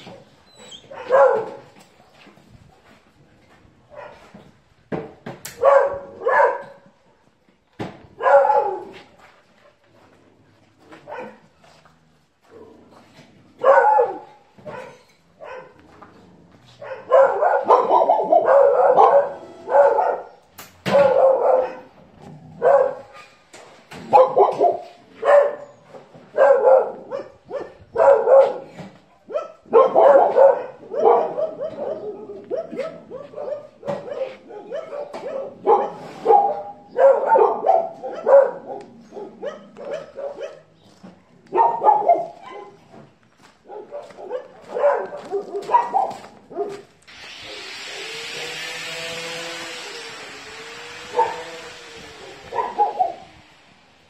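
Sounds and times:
dogs barking: 0:00.0 - 0:01.9, 0:03.9 - 0:04.4, 0:05.5 - 0:07.0, 0:08.1 - 0:09.1, 0:10.9 - 0:11.6, 0:13.6 - 0:16.0, 0:16.6 - 0:23.4, 0:24.0 - 0:47.0, 0:51.1 - 0:51.6, 0:52.2 - 0:53.4.

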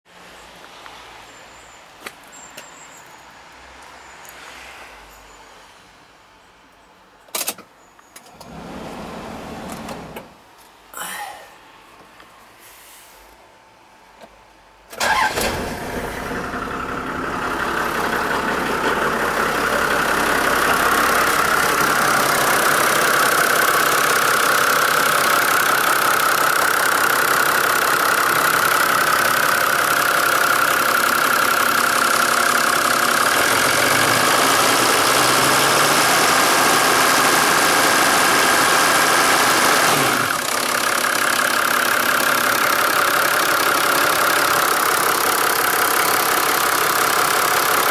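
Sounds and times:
diesel engine starting: 0:14.9 - 0:47.9
diesel engine idling: 0:15.0 - 0:47.9.

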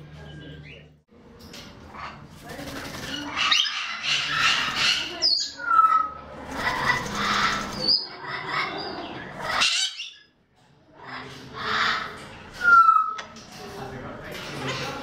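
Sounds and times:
cockatoo wings flapping on wire mesh: 0:02.4 - 0:03.4.

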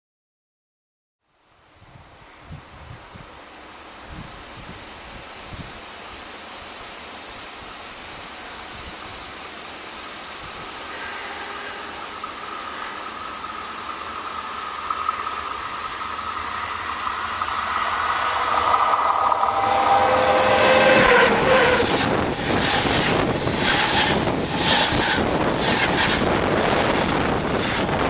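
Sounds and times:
electric train whine: 0:09.4 - 0:28.0
train wheels rushing and clacking: 0:11.9 - 0:28.0.

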